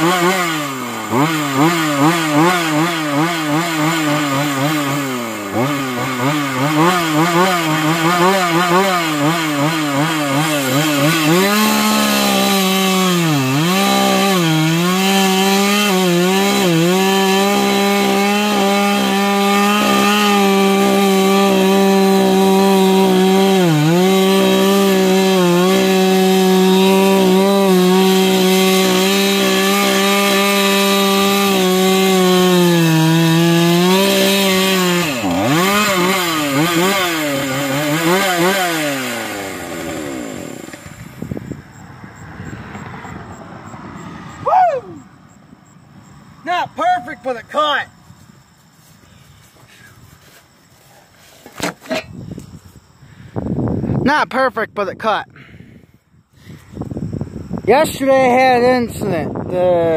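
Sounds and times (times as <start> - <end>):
chainsaw cutting wood: 0.0 - 43.6, 48.4 - 53.0
chainsaw engine revving: 0.0 - 43.8.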